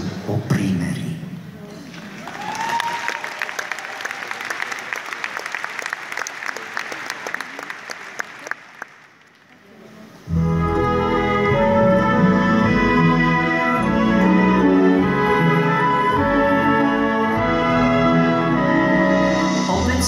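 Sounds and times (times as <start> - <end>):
audience applauding: 1.9 - 9.8
orchestra playing: 10.0 - 20.0.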